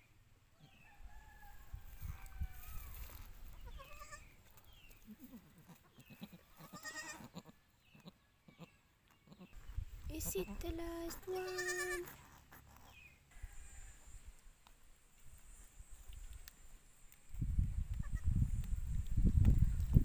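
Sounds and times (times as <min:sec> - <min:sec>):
goat kids bleating: 0:02.6 - 0:04.4, 0:05.0 - 0:09.6, 0:10.2 - 0:14.0, 0:18.0 - 0:18.3.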